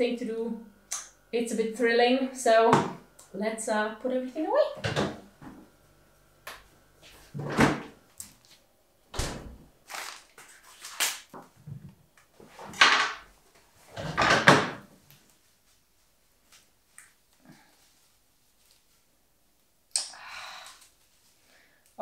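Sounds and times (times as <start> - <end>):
grocery bags rustling: 9.8 - 11.3.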